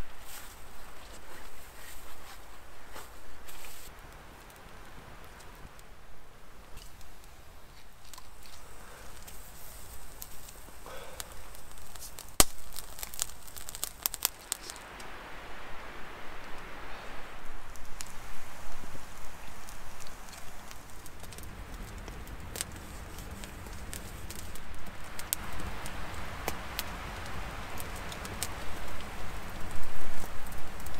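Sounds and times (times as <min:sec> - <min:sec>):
steady rushing hiss: 0:00.0 - 0:30.9
wood fire crackling: 0:00.0 - 0:30.9
sharp pops: 0:10.0 - 0:14.8
loud crack: 0:10.2 - 0:14.8.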